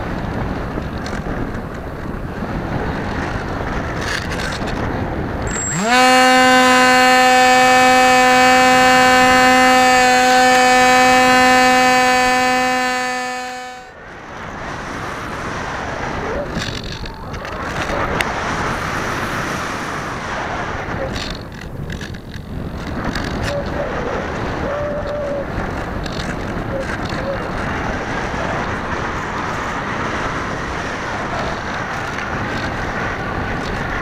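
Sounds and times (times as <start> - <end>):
wind rushing over microphone: 0.0 - 34.0
electric motor high whine: 5.5 - 14.0.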